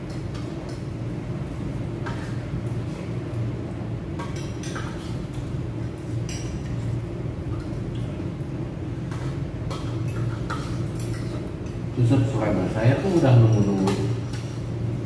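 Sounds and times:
restaurant room hum: 0:00.0 - 0:15.0
dishes and cutlery clinking: 0:09.1 - 0:11.9.

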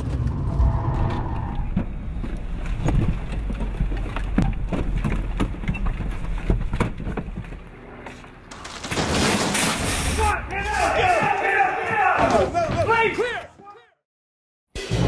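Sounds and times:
low rumble: 0:00.0 - 0:05.4
running footsteps: 0:01.7 - 0:08.4.

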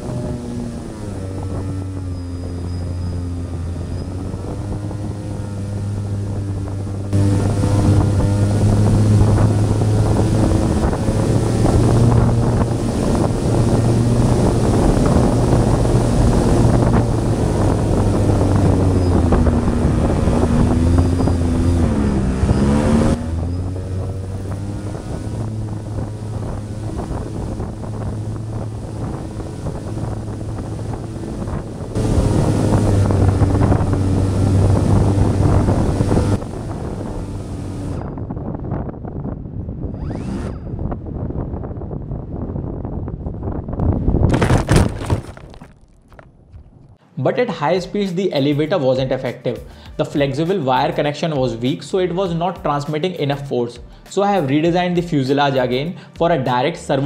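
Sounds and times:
propeller motors droning: 0:00.0 - 0:43.8
wind rushing over microphone: 0:00.0 - 0:47.0.

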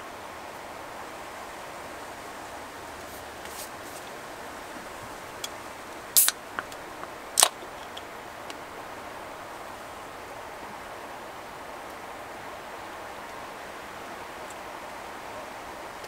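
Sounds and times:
river rushing: 0:00.0 - 0:16.0
can pull tab clicking and cracking: 0:06.2 - 0:06.8, 0:07.4 - 0:08.0.

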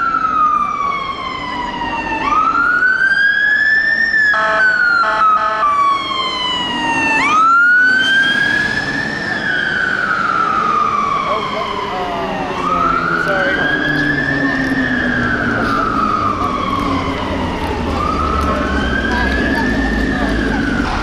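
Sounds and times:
fire engine siren wailing: 0:00.0 - 0:21.0
horn blasts: 0:04.4 - 0:05.7.

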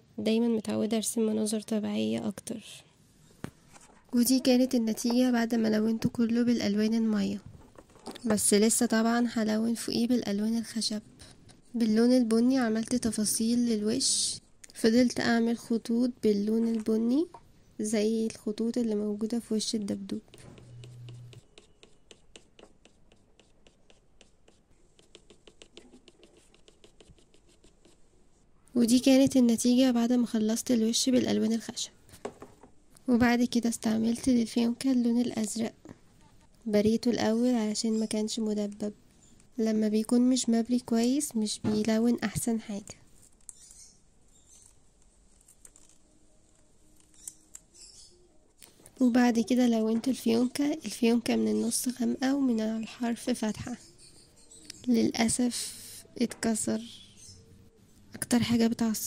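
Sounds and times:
pencil scratching on paper: 0:20.2 - 0:28.0.

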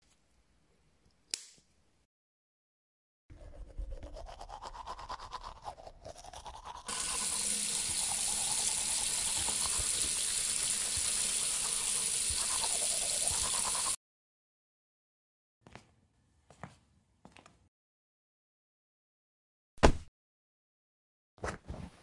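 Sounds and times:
toothbrush scrubbing teeth: 0:03.3 - 0:14.0
tap running into sink: 0:06.9 - 0:14.0.

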